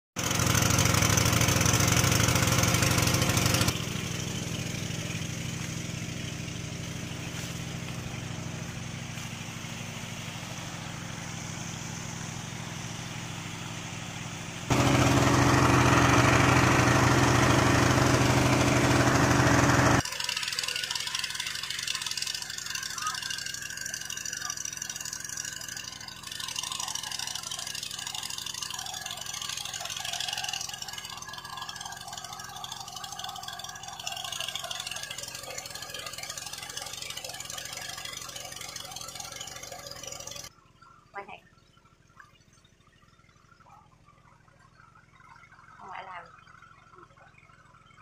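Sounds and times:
small water pump engine running: 0.2 - 40.6, 41.2 - 48.0.

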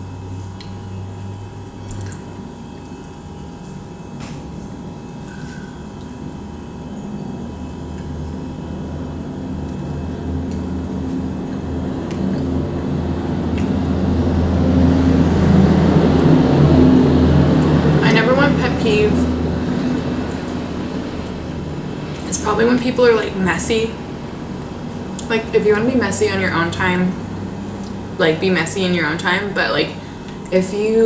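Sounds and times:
passing vehicle rumble: 12.6 - 23.3.

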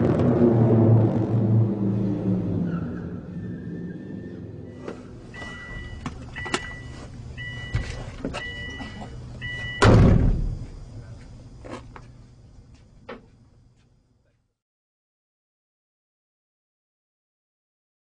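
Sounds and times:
car warning chime beeping: 4.7 - 9.9
car door slamming: 9.8 - 10.6.

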